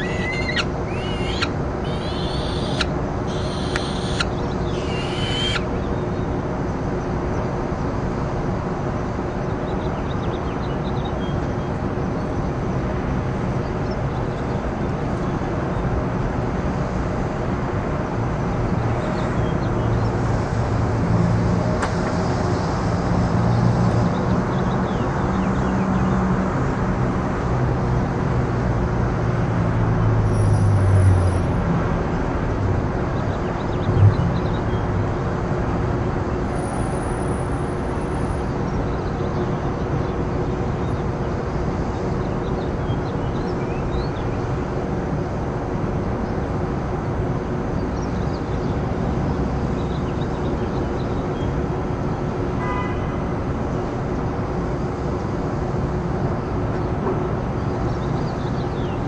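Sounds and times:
shrill bird calls: 0.0 - 5.9
traffic noise: 0.0 - 59.0.

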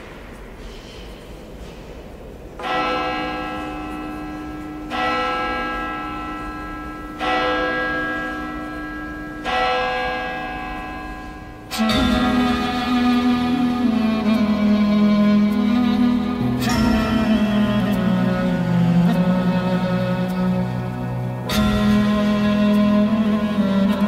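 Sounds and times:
church bell tolling: 2.6 - 24.0
slow string music: 11.7 - 24.0.

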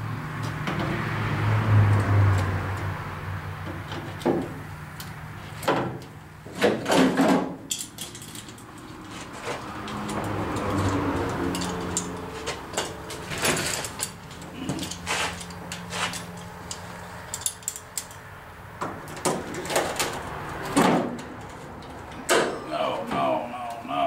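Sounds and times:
metal scraping and clunking: 5.3 - 18.2.

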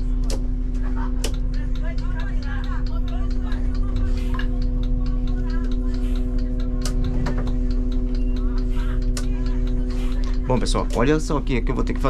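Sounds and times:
bus engine idling: 0.0 - 12.0
fast even ticking: 0.3 - 12.0.

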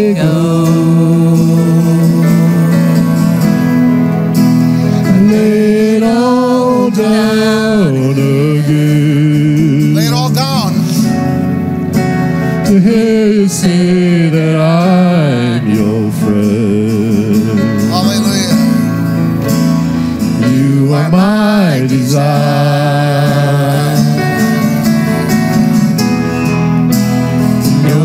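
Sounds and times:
person singing melody: 0.0 - 4.1, 20.3 - 25.4
worship band playing slow song: 0.0 - 28.0.

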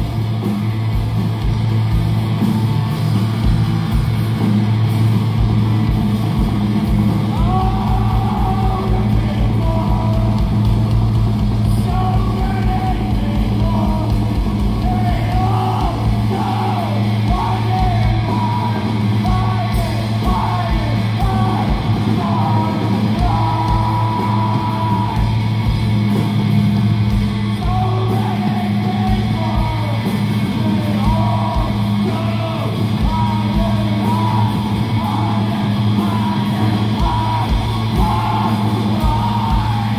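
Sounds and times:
bass guitar: 0.0 - 39.9
drum kit: 0.0 - 39.9
electric guitars: 0.0 - 39.9
person singing: 7.2 - 10.9, 11.6 - 25.4, 27.6 - 39.9.

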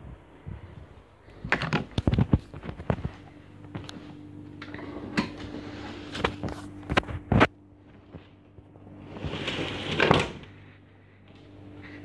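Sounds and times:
steady low hum: 0.0 - 12.0
scraping rustle: 9.0 - 10.3.

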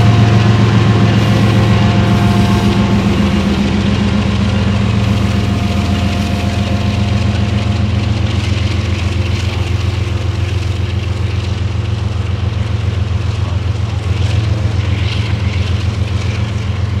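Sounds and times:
diesel locomotive engine running: 0.0 - 17.0.

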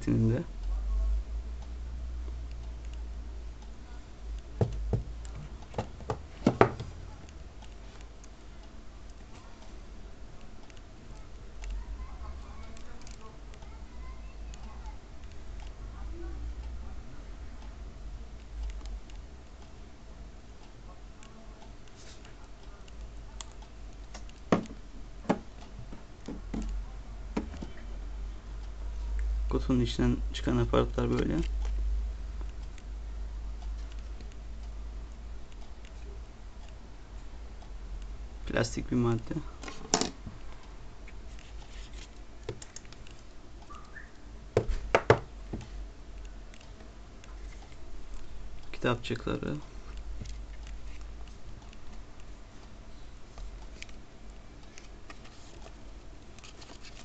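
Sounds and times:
sharp clicks and taps: 3.6 - 8.4, 21.2 - 27.7.

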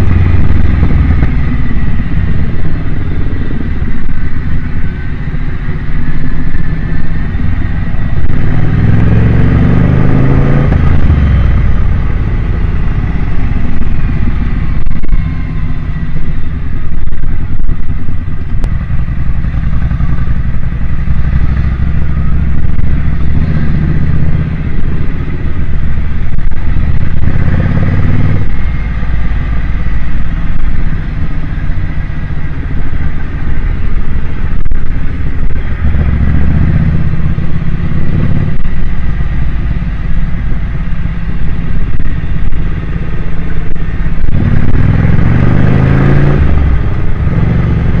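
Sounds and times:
motorcycle engine accelerating: 0.0 - 48.0
wind rush over microphone: 0.0 - 48.0.

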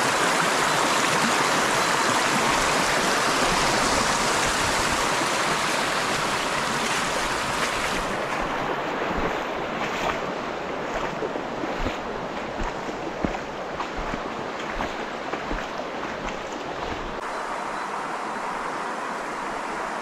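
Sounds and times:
river rushing over stones: 0.0 - 20.0
small splashes: 2.0 - 17.2.

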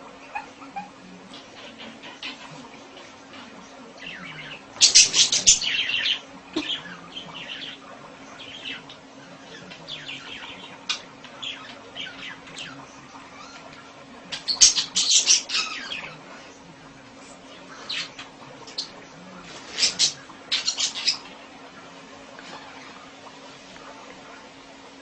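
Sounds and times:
budgerigar chirping and chattering: 4.0 - 7.8, 14.3 - 16.2, 19.6 - 21.3.

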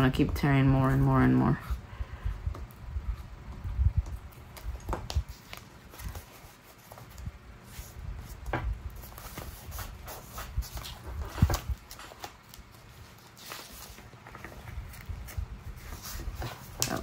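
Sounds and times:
paper rustling: 4.1 - 17.0.

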